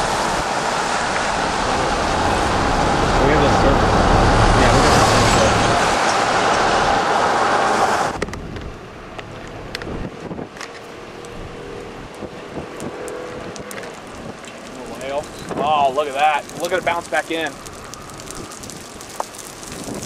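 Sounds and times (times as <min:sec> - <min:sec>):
storm wind rushing: 0:00.0 - 0:08.8
vehicle passing: 0:00.0 - 0:19.0
gusting wind: 0:00.0 - 0:20.0.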